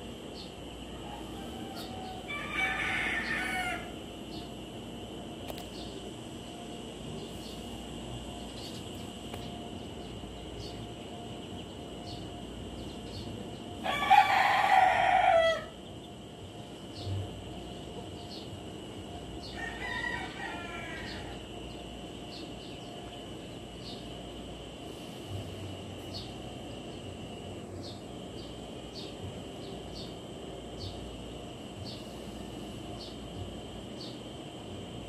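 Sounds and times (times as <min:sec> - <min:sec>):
rooster crowing: 0:00.8 - 0:04.1, 0:13.8 - 0:15.8, 0:19.4 - 0:21.6.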